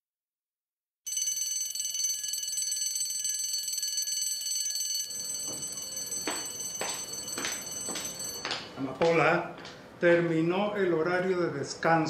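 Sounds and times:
electric bell ringing: 1.1s - 8.7s.

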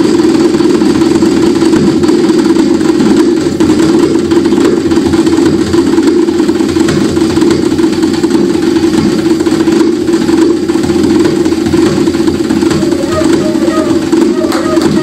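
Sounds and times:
drum kit: 0.0s - 15.0s
cello drone: 12.6s - 15.0s.

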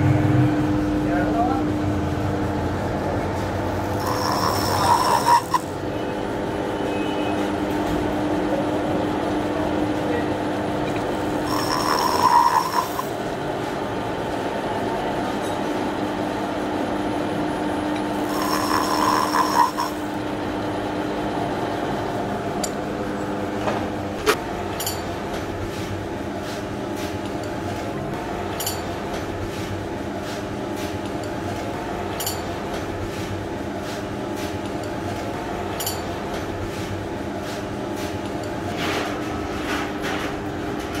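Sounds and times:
milling machine drone: 0.0s - 24.6s.

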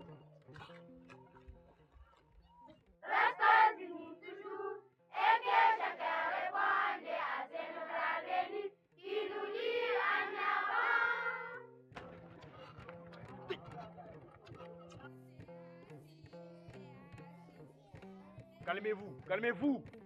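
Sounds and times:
children singing together: 3.0s - 11.7s.

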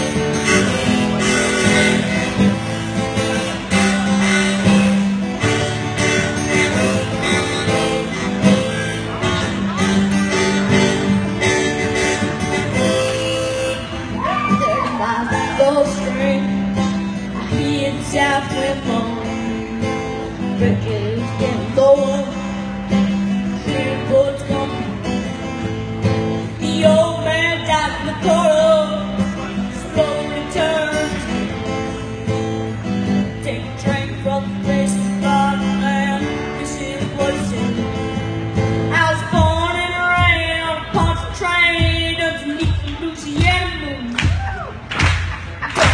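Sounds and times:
wavering lead melody: 0.0s - 14.7s
acoustic guitar strumming: 0.0s - 45.9s.

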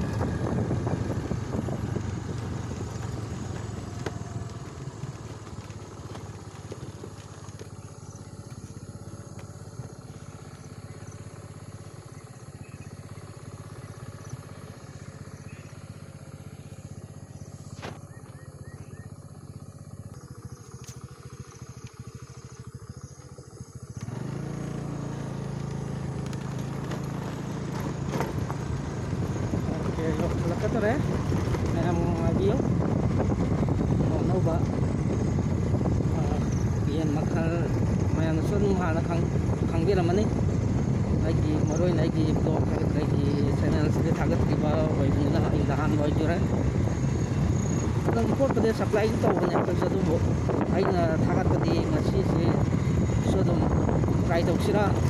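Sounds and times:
wind buffeting microphone: 0.0s - 8.6s, 26.1s - 55.0s
motorcycle engine running: 0.0s - 55.0s.

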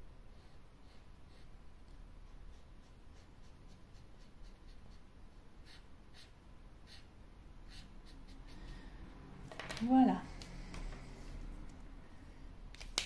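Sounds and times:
felt tip marker scratching on wood: 0.4s - 5.0s, 5.6s - 7.1s.

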